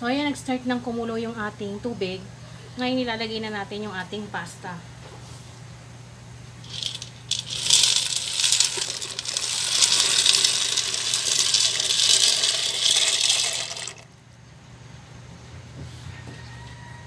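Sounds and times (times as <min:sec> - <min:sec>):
dry pasta rattling into pot: 0:06.7 - 0:14.0.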